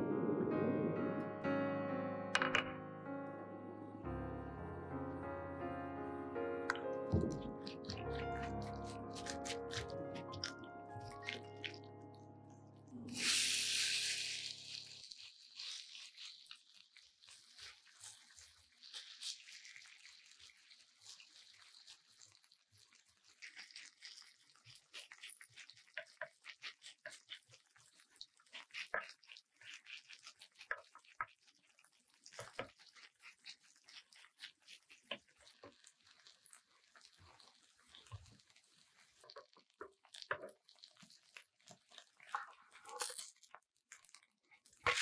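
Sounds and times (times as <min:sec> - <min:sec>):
potato sizzling in oil: 0:13.1 - 0:45.0.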